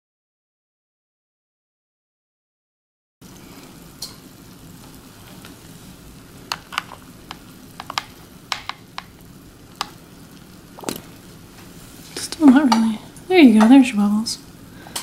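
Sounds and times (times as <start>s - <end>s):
foam fizzing: 3.2s - 14.9s
faint steady hum: 3.2s - 15.0s
small clicks and pops: 6.4s - 9.2s, 9.8s - 10.0s.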